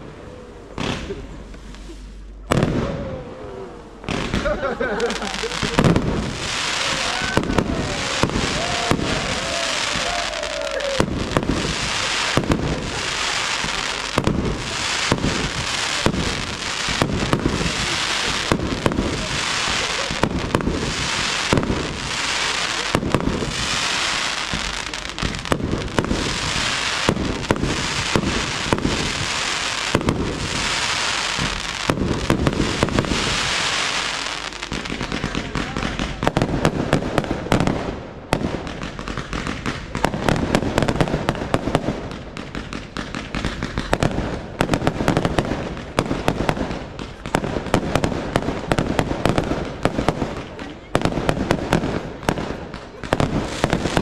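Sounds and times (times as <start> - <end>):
fireworks bangs: 0.0 - 54.0
fireworks crackling and popping: 0.0 - 54.0
fireworks hissing: 0.0 - 54.0.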